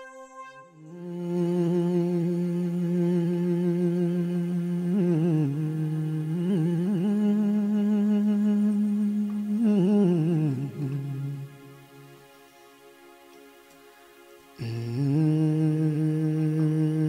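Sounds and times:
person humming low notes: 0.0s - 11.8s.

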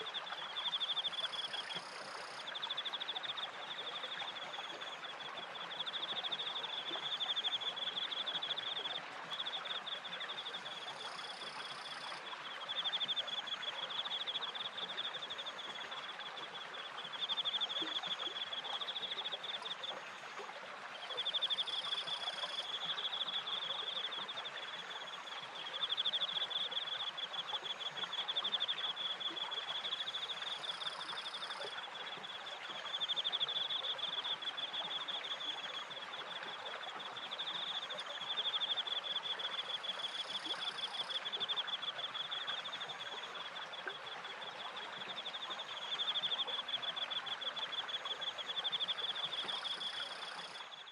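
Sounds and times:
crickets chirping: 0.5s - 20.4s, 21.2s - 50.8s.

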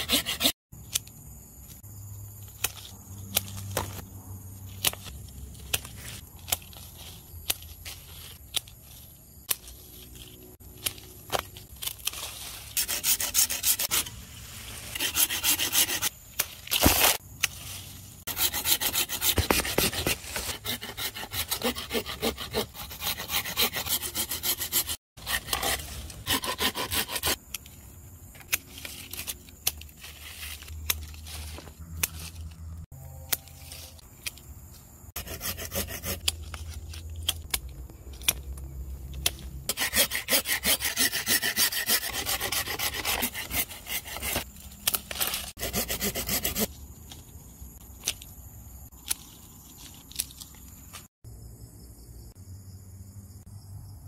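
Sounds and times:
hand saw rasping through wood: 0.0s - 0.6s, 12.8s - 14.1s, 14.9s - 16.1s, 18.3s - 27.4s, 35.2s - 36.3s, 39.7s - 44.4s, 45.5s - 46.7s.

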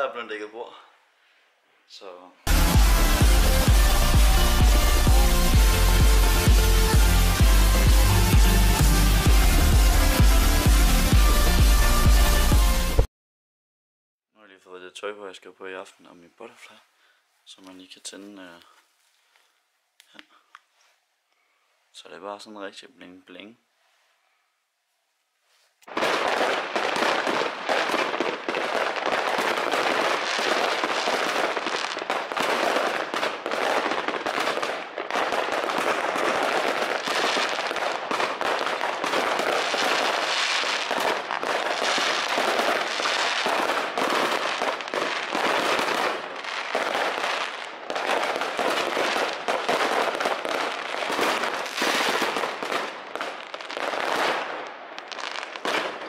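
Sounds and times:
fireworks bangs and crackling: 2.5s - 13.1s, 25.8s - 56.0s.

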